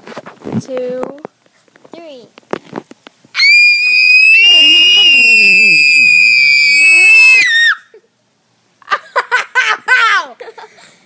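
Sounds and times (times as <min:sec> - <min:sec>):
children screaming: 0:03.4 - 0:08.0.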